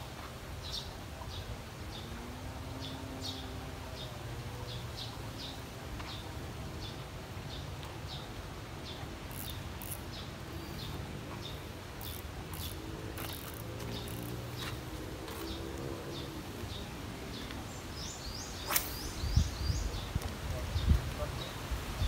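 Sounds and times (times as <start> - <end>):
bird chirping: 0.6 - 21.5
wind rumbling on microphone: 12.7 - 22.0
sharp click: 18.7 - 19.1.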